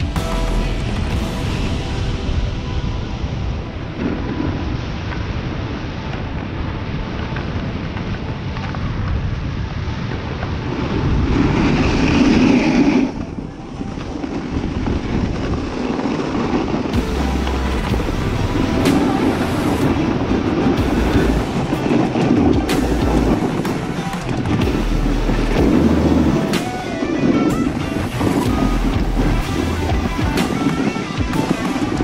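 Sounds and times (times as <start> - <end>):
snowboard sliding over snow: 0.0 - 32.0
wind buffeting microphone: 0.0 - 32.0.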